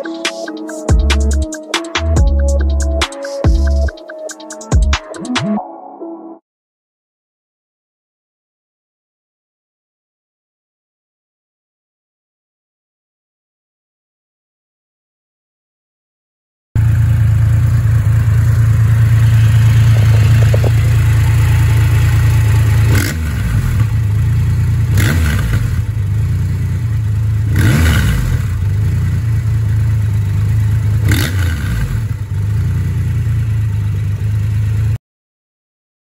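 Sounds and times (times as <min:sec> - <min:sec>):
motorcycle engine idling and revving: 0:16.8 - 0:35.0.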